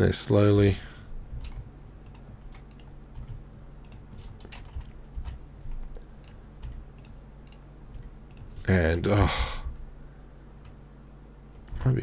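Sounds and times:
low steady hum: 0:00.0 - 0:12.0
keyboard keys clicking: 0:01.3 - 0:08.5.

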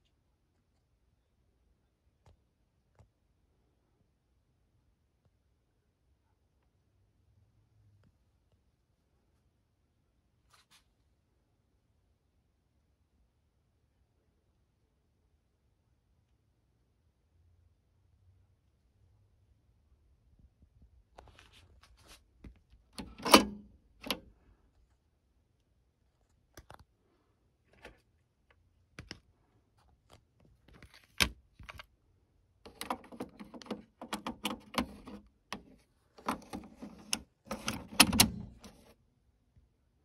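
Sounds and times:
cassette deck eject clunk: 0:23.0 - 0:24.2, 0:32.7 - 0:38.9
plastic cassette rattling: 0:32.7 - 0:38.9.

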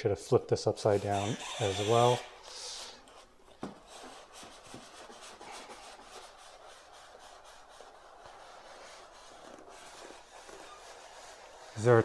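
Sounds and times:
cardboard box rubbing and scraping: 0:08.4 - 0:12.0.

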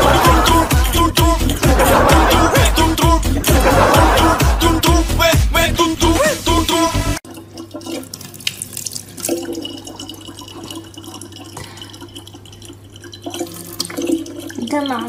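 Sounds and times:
music: 0:00.0 - 0:07.2
faucet water into plastic bottle: 0:07.2 - 0:15.0.

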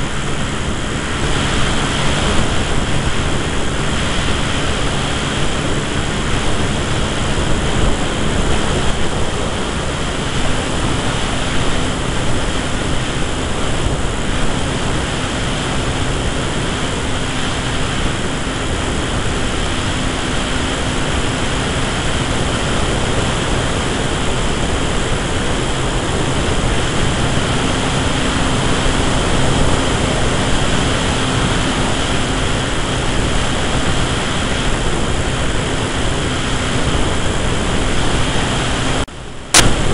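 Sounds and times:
electric motor and propeller hum: 0:00.0 - 0:39.9
wind rushing over microphone: 0:00.0 - 0:39.9.

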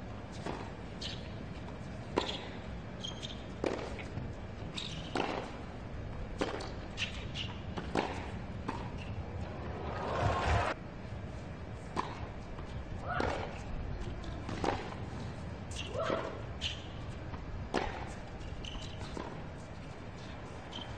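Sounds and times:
low crowd hum: 0:00.0 - 0:15.8
racket hitting tennis ball: 0:03.6 - 0:04.1, 0:05.1 - 0:05.6, 0:06.4 - 0:07.2, 0:07.8 - 0:10.5.

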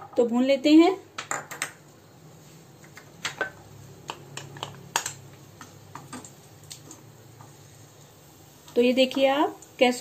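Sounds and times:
nuts and spatula tapping a pan: 0:02.9 - 0:06.4.

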